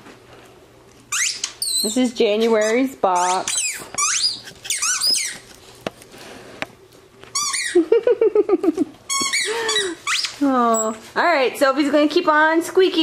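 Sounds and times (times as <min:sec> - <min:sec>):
dog toy squeaking: 0:01.1 - 0:05.5, 0:07.3 - 0:07.8, 0:09.1 - 0:11.0.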